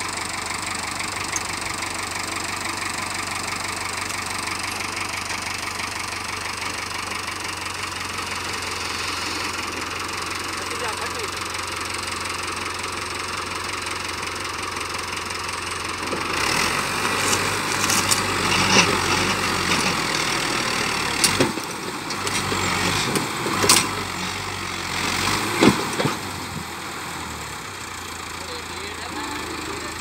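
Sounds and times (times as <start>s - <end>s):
tractor diesel engine running: 0.0s - 30.0s
roots and wood snapping: 17.0s - 20.2s.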